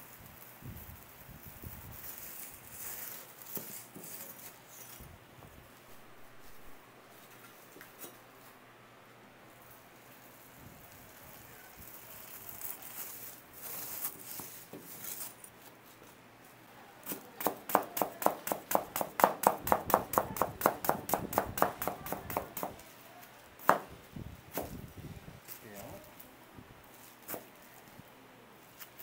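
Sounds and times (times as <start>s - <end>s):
faint rustling: 9.6s - 16.9s
knife chopping on cutting board: 17.1s - 22.8s, 23.6s - 23.9s.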